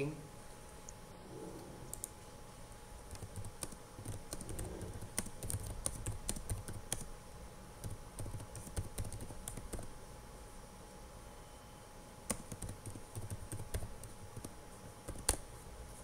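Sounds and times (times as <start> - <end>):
typing on computer keyboard: 3.1 - 7.1, 7.8 - 9.9, 12.3 - 15.4.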